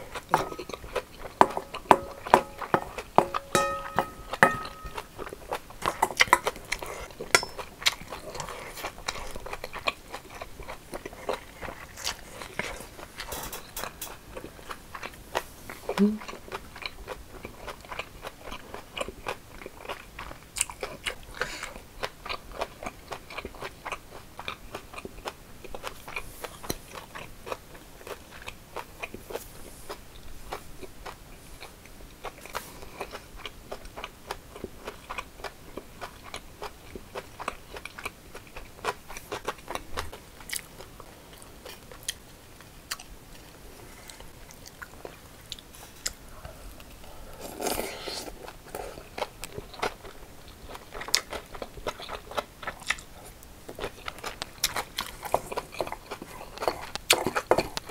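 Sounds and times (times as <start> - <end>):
person chewing food: 0.0 - 57.9.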